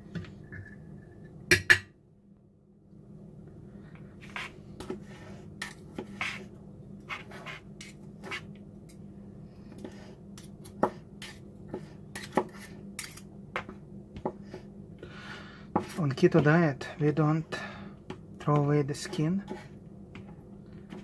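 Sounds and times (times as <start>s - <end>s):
cutlery scraping and clicking: 13.0s - 13.3s.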